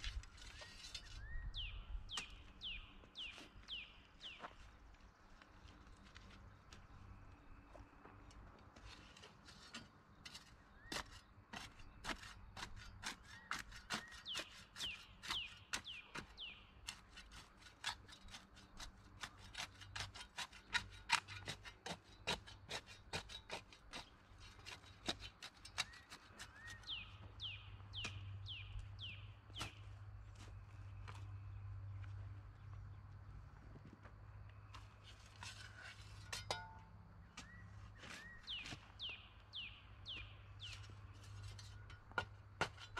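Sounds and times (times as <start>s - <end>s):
shovel scraping dirt and gravel: 0.0s - 1.4s, 8.8s - 27.2s, 28.0s - 31.2s, 34.7s - 42.9s
bird singing: 0.4s - 4.6s, 10.1s - 17.0s, 25.6s - 30.0s, 37.2s - 42.0s.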